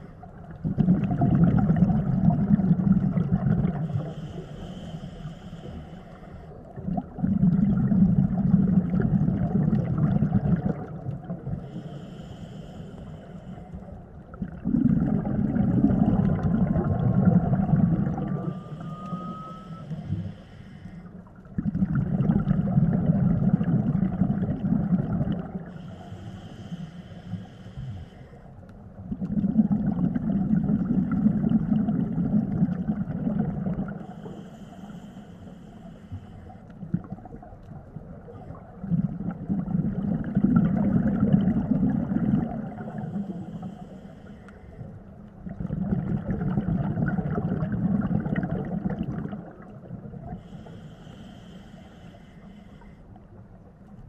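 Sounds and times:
bubbling exhale underwater: 0.0 - 4.9, 6.8 - 11.8, 14.3 - 20.2, 21.4 - 25.9, 29.0 - 34.5, 36.8 - 43.8, 45.4 - 50.6
regulator hissing inhale: 3.8 - 6.8, 11.5 - 14.0, 18.4 - 21.3, 25.6 - 28.7, 34.0 - 36.8, 42.8 - 45.2, 50.3 - 53.4.

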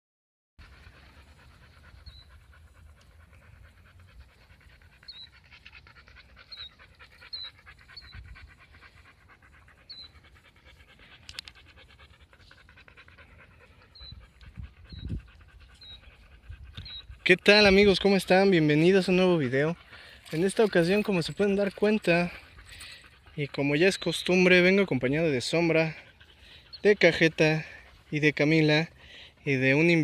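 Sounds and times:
dog panting: 0.6 - 30.0.

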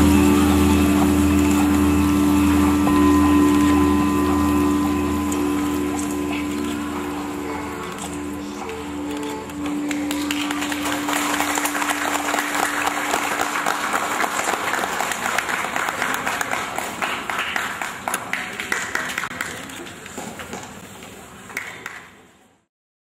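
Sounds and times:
held note of dance music: 0.0 - 15.9
audience applause: 8.7 - 20.7.

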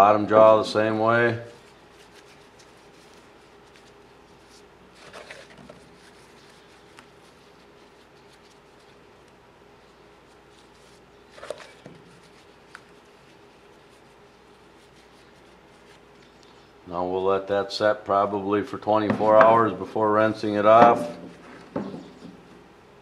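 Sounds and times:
soft glove rustles: 0.7 - 16.8.

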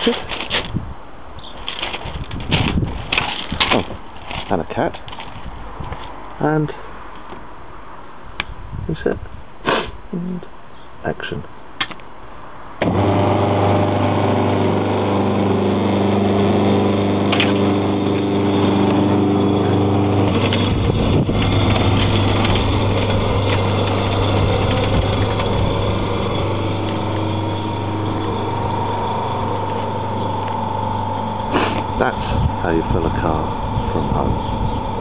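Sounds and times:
compressor motor humming: 12.8 - 35.0
high whine: 12.8 - 35.0.

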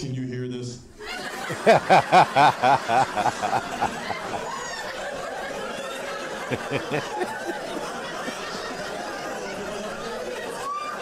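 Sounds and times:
man laughing: 1.5 - 4.5, 6.5 - 8.4.

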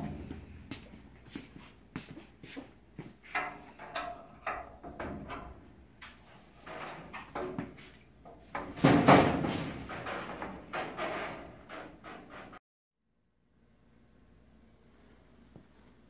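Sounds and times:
knocks and creaking of wooden frame: 3.2 - 12.6.

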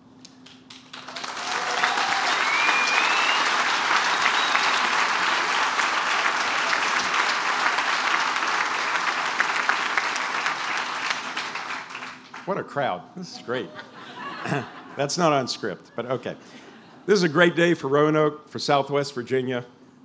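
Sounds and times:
crowd applauding: 0.4 - 12.5.

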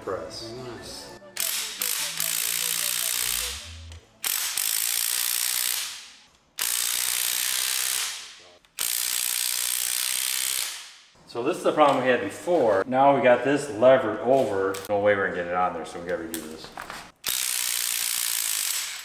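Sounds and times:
impact wrench bursts: 1.4 - 11.0, 17.2 - 19.0.

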